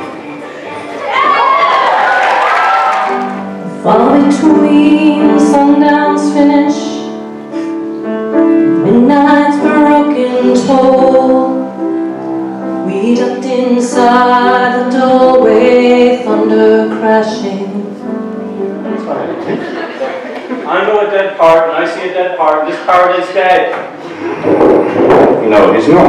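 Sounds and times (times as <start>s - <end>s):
grand piano: 0.0s - 20.7s, 21.3s - 26.0s
woman singing: 3.6s - 7.2s, 8.8s - 11.8s, 12.8s - 18.2s.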